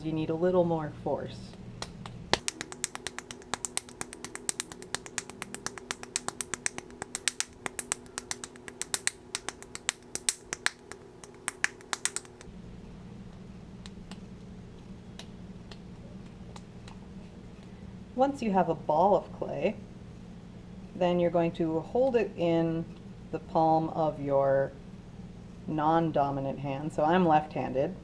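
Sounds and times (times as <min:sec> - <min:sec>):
palms slapping clay: 0:01.5 - 0:12.5.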